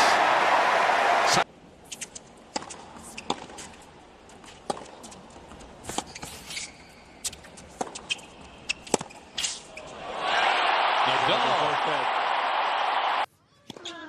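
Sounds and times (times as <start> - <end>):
tennis racket strokes and bounces: 1.8 - 10.0.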